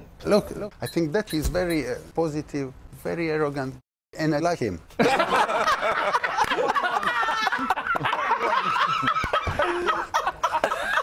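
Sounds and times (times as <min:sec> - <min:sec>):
men laughing: 0:05.0 - 0:11.0.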